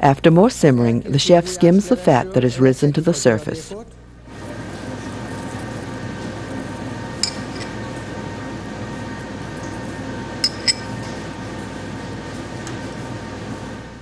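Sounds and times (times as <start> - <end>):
steady background hum: 0.0 - 14.0
metal spoon clinking on pot: 7.2 - 7.8, 10.4 - 10.9.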